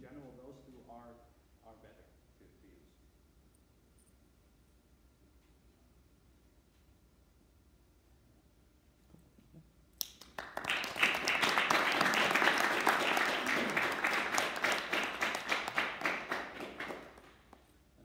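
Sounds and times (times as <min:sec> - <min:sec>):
audience applauding: 0:10.0 - 0:17.7.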